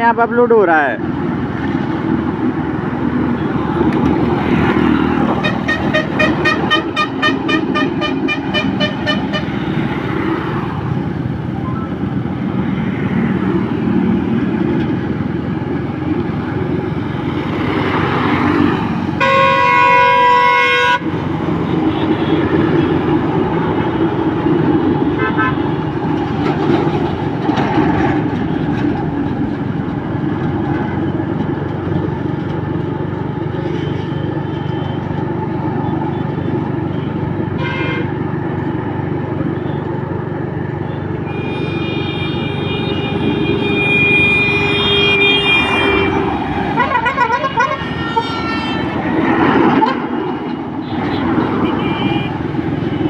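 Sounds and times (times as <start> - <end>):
vehicle engine and road noise: 0.0 - 53.0
steady horn blast: 5.0 - 9.8, 19.2 - 21.1, 37.6 - 38.2, 41.3 - 50.2
short horn beeps: 41.3 - 46.3.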